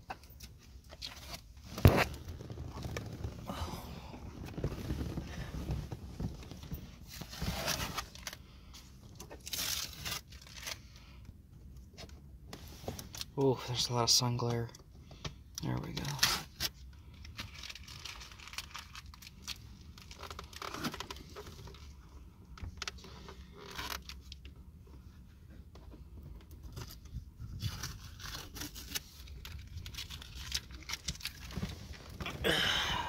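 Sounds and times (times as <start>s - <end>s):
handling rustling and scraping: 0.0s - 10.9s, 15.9s - 32.4s
low steady rumble: 0.1s - 15.8s.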